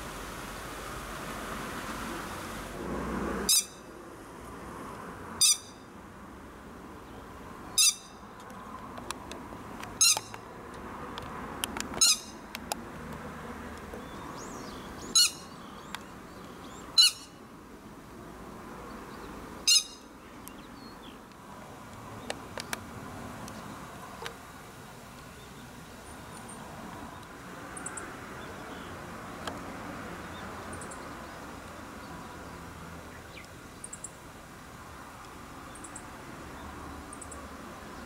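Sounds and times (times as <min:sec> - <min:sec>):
faint hiss: 0:00.0 - 0:05.3
lapwing calling: 0:03.5 - 0:03.8, 0:05.4 - 0:05.8, 0:07.8 - 0:08.2, 0:10.0 - 0:10.4, 0:12.0 - 0:12.4, 0:14.5 - 0:15.6, 0:16.7 - 0:17.4, 0:19.7 - 0:20.1.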